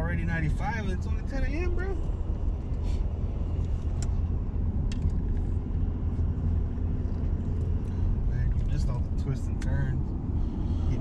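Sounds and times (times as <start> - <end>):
truck engine rumble: 0.0 - 11.0
tyres on road: 0.0 - 11.0.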